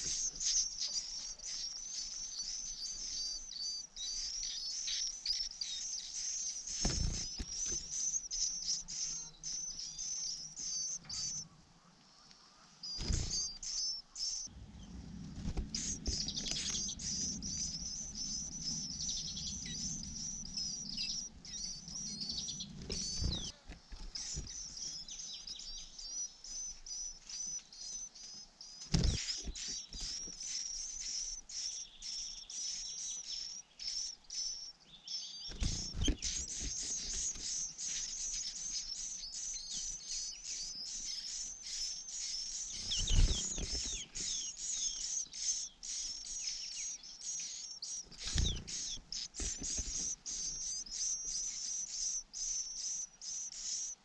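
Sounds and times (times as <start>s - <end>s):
nestlings chirping begging calls: 0.0s - 11.8s, 12.6s - 54.0s.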